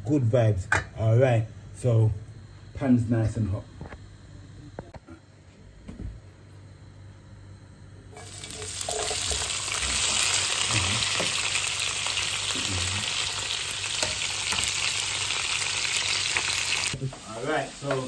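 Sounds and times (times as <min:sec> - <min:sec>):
vegetables sizzling in oil: 0:08.2 - 0:18.0.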